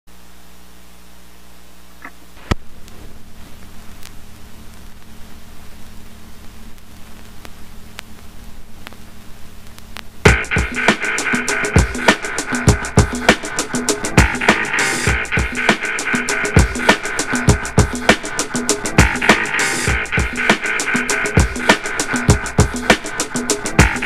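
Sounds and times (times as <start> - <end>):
vinyl surface hiss and crackles: 0.1 - 24.0
drum-led music: 10.2 - 24.0.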